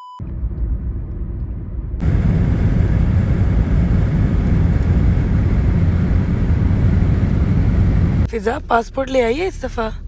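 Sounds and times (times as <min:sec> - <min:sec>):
car road rumble: 0:00.2 - 0:10.0
jet airliner flying overhead: 0:02.0 - 0:08.3.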